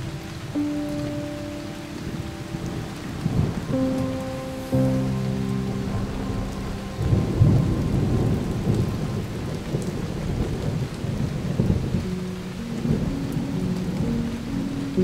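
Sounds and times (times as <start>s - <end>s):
held musical notes: 0.0s - 10.5s.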